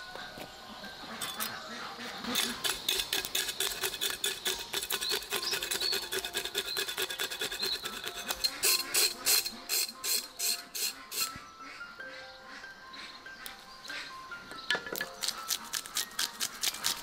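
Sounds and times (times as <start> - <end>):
cleaver scraping fish scales: 2.2 - 11.4, 15.2 - 17.0.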